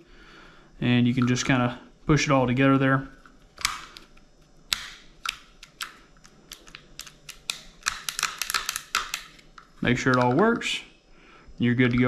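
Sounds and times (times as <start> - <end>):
pistol safety clicking: 3.6 - 10.3.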